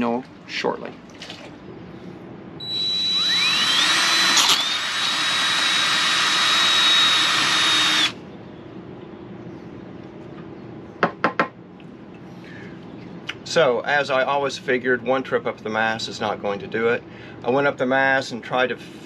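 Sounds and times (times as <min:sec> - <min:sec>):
cordless drill whining: 0:02.6 - 0:08.2.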